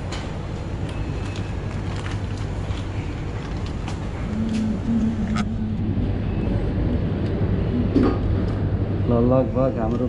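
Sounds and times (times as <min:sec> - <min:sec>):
refrigerator and fan hum: 0:00.0 - 0:10.0
low wavering tone: 0:04.2 - 0:09.4.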